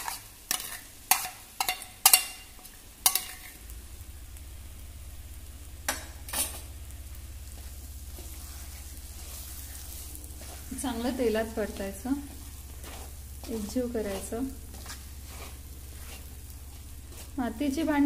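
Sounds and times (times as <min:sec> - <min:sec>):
low steady hum: 0:00.0 - 0:18.0
masala frying in oil: 0:00.0 - 0:18.0
wooden spatula stirring paste: 0:08.1 - 0:17.4.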